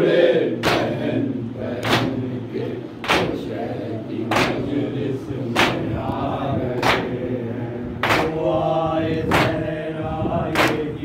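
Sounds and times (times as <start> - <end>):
men chanting a lament: 0.0 - 11.0.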